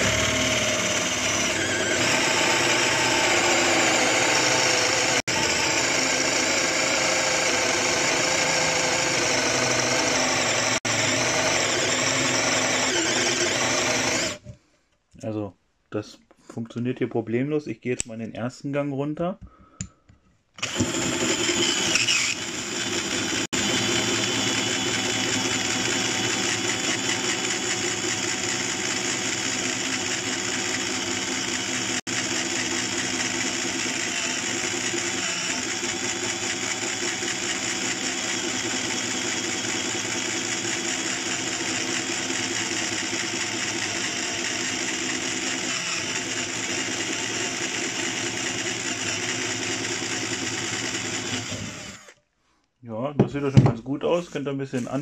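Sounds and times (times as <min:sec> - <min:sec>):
cordless drill boring into wood: 0:00.0 - 0:14.4, 0:20.6 - 0:52.2.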